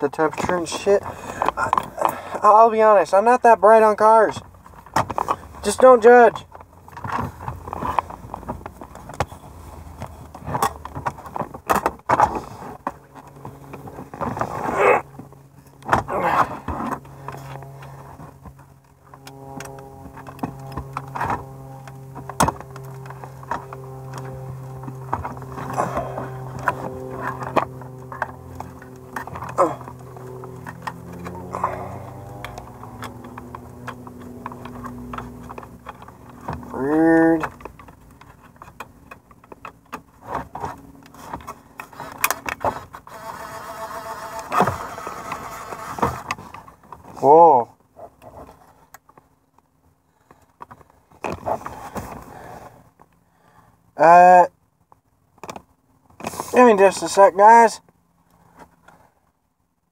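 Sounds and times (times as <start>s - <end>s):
steady electrical hum: 0.0s - 50.3s
plastic clicks and scrapes: 37.4s - 47.0s.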